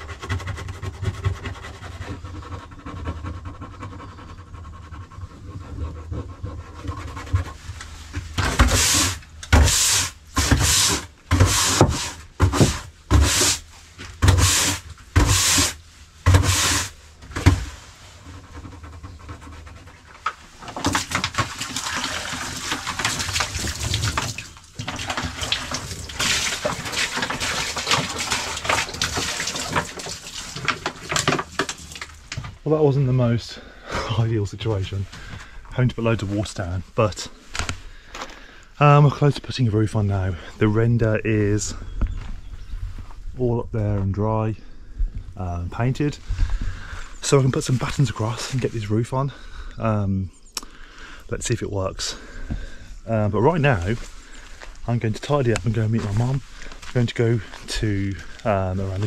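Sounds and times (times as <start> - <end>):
push broom scrubbing wet decking: 0.0 - 32.2
water pouring onto boards: 7.1 - 18.0, 20.1 - 32.4.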